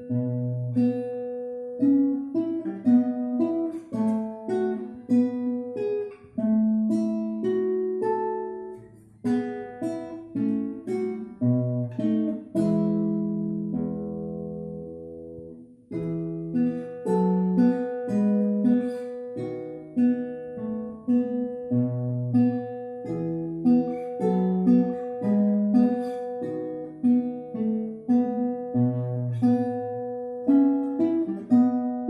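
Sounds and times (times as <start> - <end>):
nylon-string guitar fingerstyle: 0.0 - 32.0.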